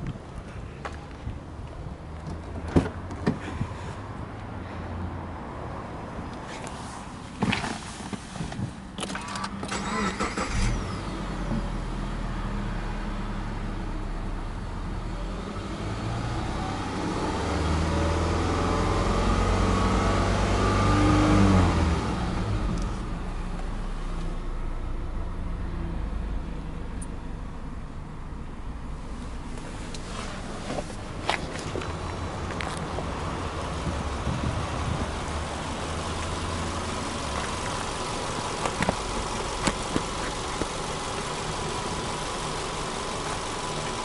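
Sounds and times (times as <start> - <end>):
engine cranking: 9.0 - 10.8
engine revving: 15.2 - 23.0
car engine idling: 22.2 - 44.0.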